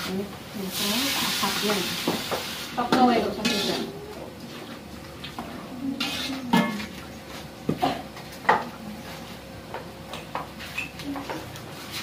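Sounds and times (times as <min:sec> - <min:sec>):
dishes clinking: 0:06.0 - 0:07.1.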